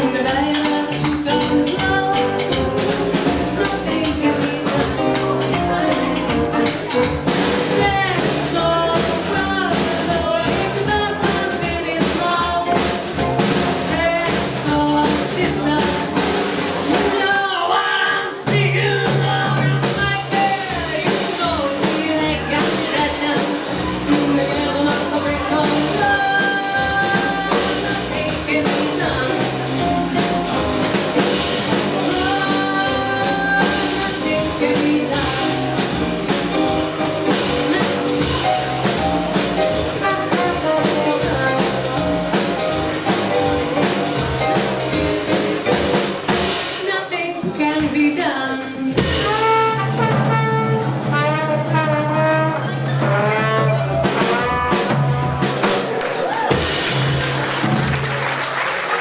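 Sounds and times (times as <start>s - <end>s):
drums: 0.0s - 59.0s
swing jazz band playing: 0.0s - 59.0s
trombone: 22.1s - 46.5s, 49.0s - 56.0s.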